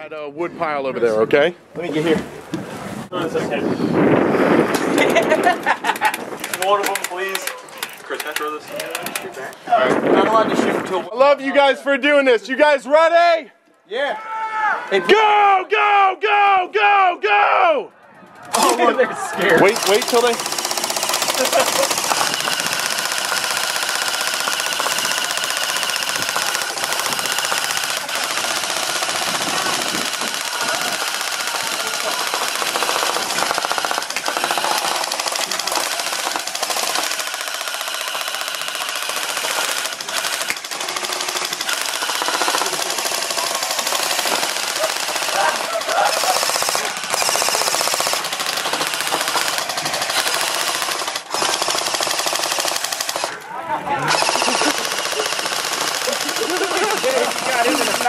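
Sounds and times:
airsoft guns firing full-auto: 18.5 - 53.4, 54.0 - 58.0.

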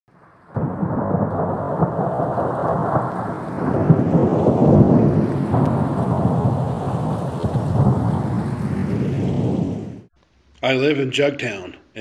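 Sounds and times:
low rumbling noise: 0.2 - 10.7.

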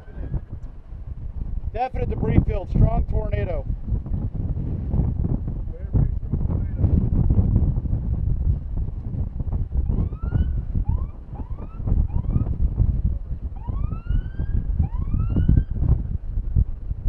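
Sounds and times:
siren wailing: 0.0 - 0.5, 9.8 - 12.6, 13.6 - 15.8
heavy wind buffeting microphone: 0.0 - 17.0.

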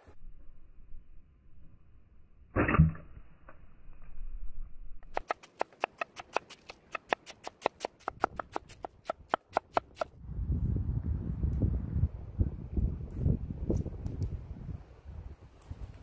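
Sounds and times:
knife cutting cabbage on board: 5.2 - 10.1.

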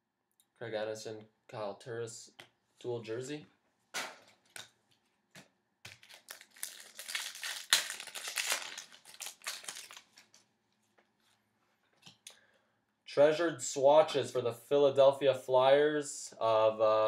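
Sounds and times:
card packaging crinkling: 5.9 - 10.5.

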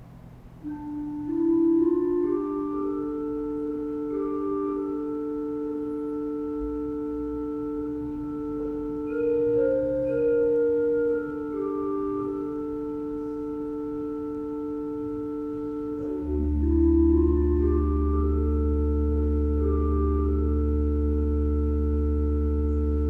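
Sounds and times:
slow sustained music tones: 0.0 - 23.0
deep bass note: 6.0 - 23.0.

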